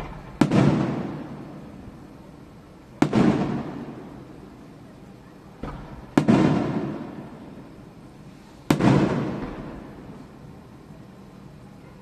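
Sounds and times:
firework shells bursting: 0.0 - 4.6, 5.6 - 7.8, 8.6 - 10.3
rolling rumble: 0.0 - 4.7.

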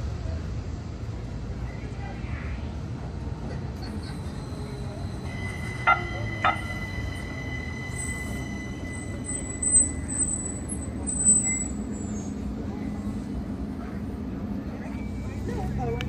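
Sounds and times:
streetcar rumble and whine: 0.0 - 16.0
thin high squeal: 4.0 - 12.4.

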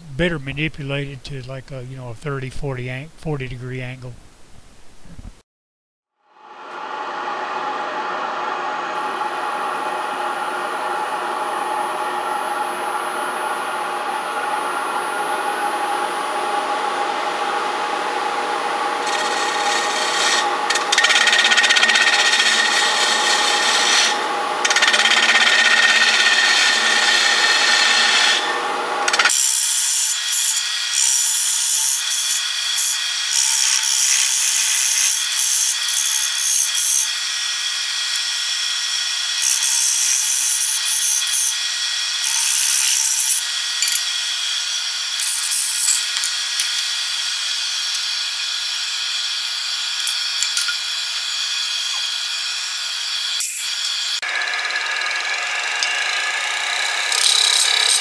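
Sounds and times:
lathe tool scraping wood: 18.8 - 37.1, 42.2 - 58.0.

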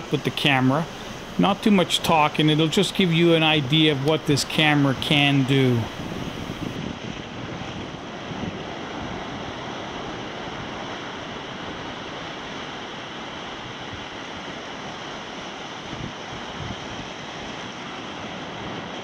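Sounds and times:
small waves breaking on shore: 0.0 - 19.0.

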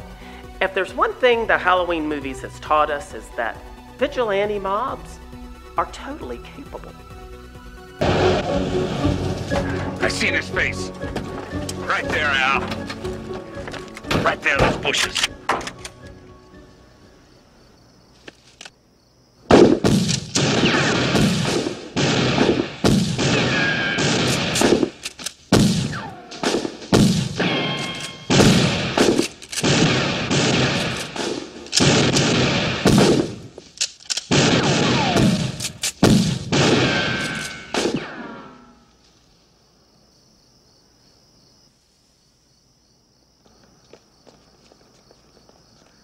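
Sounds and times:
rapid gunfire: 19.5 - 27.5, 28.3 - 33.4, 34.3 - 38.1.

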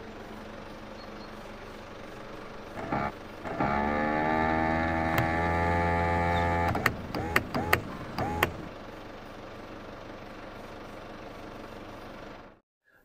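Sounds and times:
short motor whirs: 2.7 - 8.7
window motor whining: 2.7 - 8.7
switch clicks: 5.1 - 5.6, 6.4 - 8.6.

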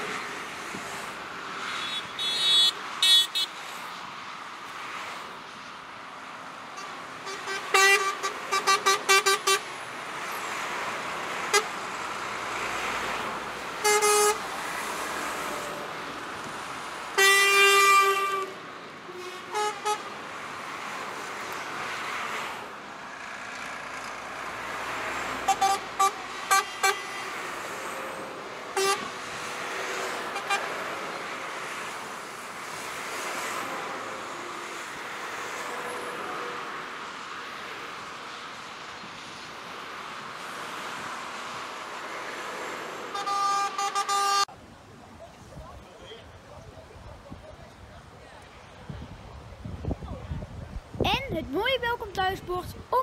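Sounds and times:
trucks passing on wet road: 0.0 - 47.0
truck horn toots: 1.8 - 3.5, 6.8 - 9.6, 13.8 - 14.4, 17.2 - 20.1, 25.5 - 27.2, 28.8 - 29.1, 43.1 - 44.5.

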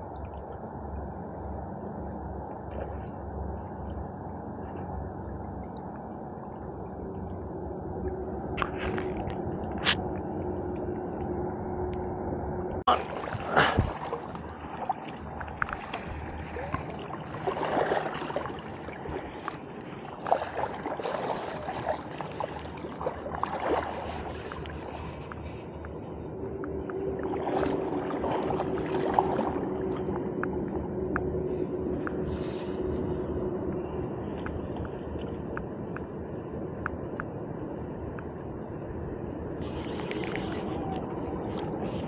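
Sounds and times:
river water sloshing and gurgling: 0.0 - 12.0, 12.8 - 32.7, 39.6 - 42.0
water splashes: 12.8 - 25.7, 26.7 - 30.8, 39.6 - 42.0.

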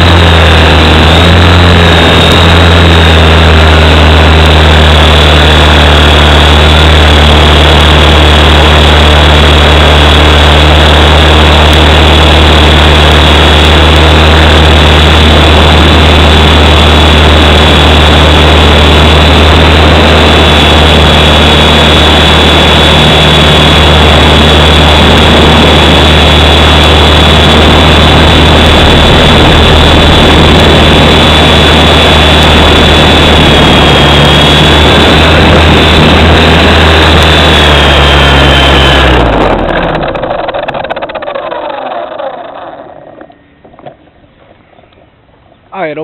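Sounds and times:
helicopter motor and rotor drone: 0.0 - 46.0.

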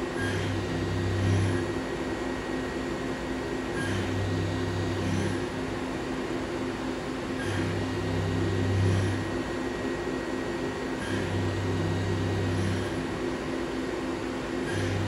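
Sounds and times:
milling machine hum: 0.0 - 15.0
deeper machine drone: 0.1 - 1.9, 3.8 - 5.8, 7.4 - 9.5, 11.0 - 13.2, 14.6 - 15.0.

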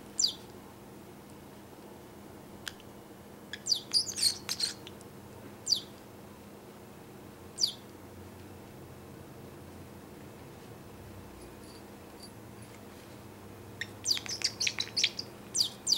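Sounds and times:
parrotlet chirping: 0.2 - 0.4, 3.5 - 4.8, 5.6 - 5.9, 7.6 - 7.8, 13.8 - 15.9.

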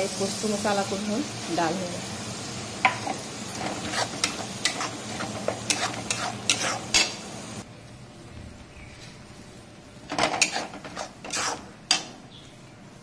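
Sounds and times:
food sizzling in oil: 0.0 - 7.7, 10.1 - 12.1
metal spatula scraping a pan: 3.5 - 7.2, 10.1 - 12.1.

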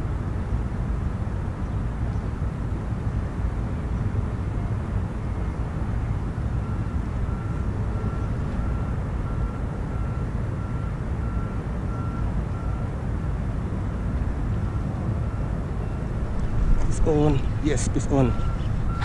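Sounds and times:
faint high beeps: 6.6 - 12.9, 15.2 - 19.0.

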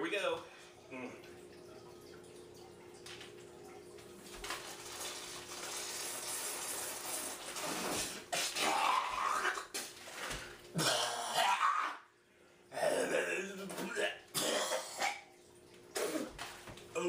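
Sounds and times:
fizzing foam hiss: 4.8 - 8.4
spitting: 5.7 - 12.0, 15.9 - 16.4
man sputtering and gagging: 8.2 - 10.0, 10.7 - 12.1, 12.7 - 15.3, 15.9 - 16.4.

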